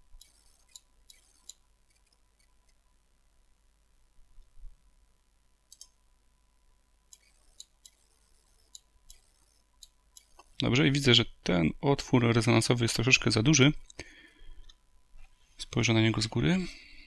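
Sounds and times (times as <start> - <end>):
computer mouse clicks: 0.2 - 2.8, 5.7 - 6.0, 7.1 - 10.6.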